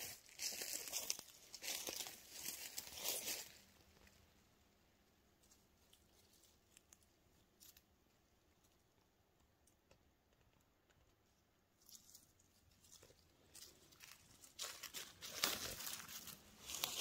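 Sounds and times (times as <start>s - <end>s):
dry leaves crackling underfoot: 0.0s - 4.2s, 11.8s - 17.0s.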